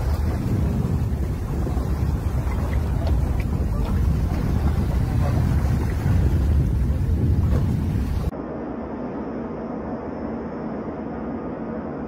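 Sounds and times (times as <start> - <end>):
wind buffeting microphone: 0.0 - 8.4.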